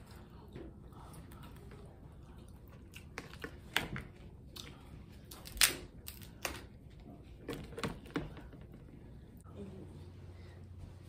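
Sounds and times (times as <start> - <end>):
crab shell cracking: 5.3 - 6.6.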